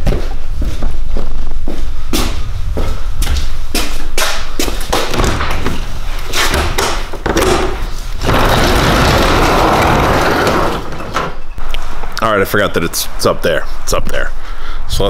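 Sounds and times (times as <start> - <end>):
footsteps and knocks: 0.0 - 11.6.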